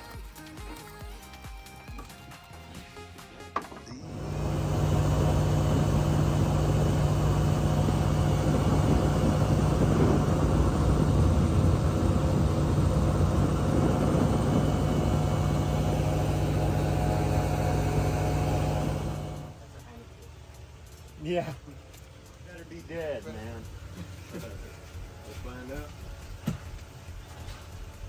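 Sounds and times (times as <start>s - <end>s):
boat engine droning: 3.9s - 19.7s.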